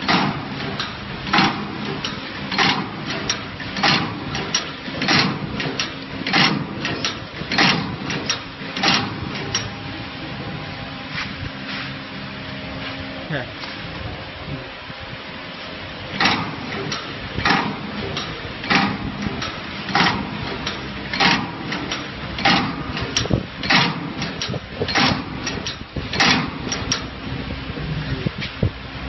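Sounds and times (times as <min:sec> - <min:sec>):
machine mechanical strokes: 0:00.0 - 0:12.0, 0:16.0 - 0:28.7
light mechanical ticks: 0:16.2 - 0:27.2.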